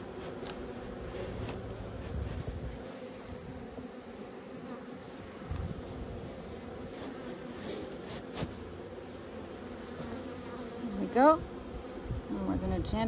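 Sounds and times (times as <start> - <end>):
honeybees buzzing: 0.0 - 13.0.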